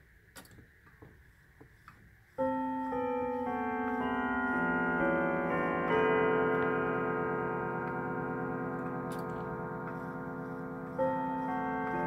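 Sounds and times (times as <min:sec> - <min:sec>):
clock chime rods ringing: 0:02.4 - 0:12.0.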